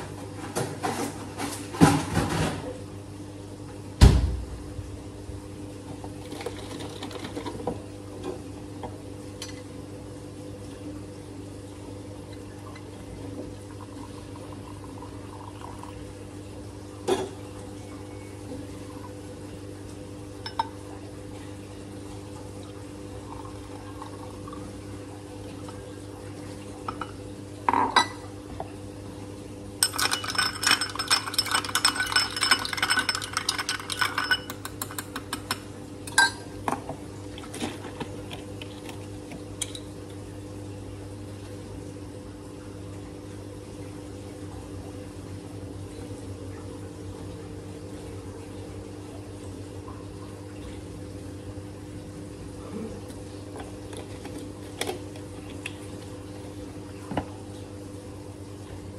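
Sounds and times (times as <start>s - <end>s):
low steady hum: 0.0s - 58.9s
thud: 4.0s - 4.6s
spoon clinking ice in glass: 29.8s - 35.6s
glassware clicking: 29.8s - 36.4s.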